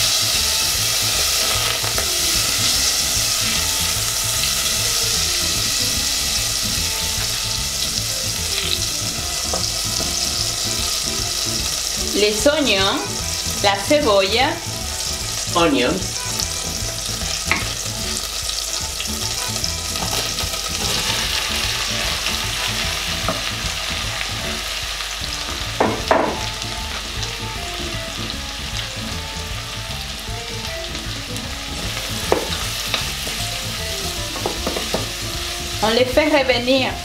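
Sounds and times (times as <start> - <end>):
onions sizzling in butter: 0.0 - 37.0
wooden spoon knocking in pan: 9.4 - 10.8, 17.2 - 17.8, 23.2 - 23.8, 25.4 - 27.0, 31.8 - 33.4, 34.2 - 35.2.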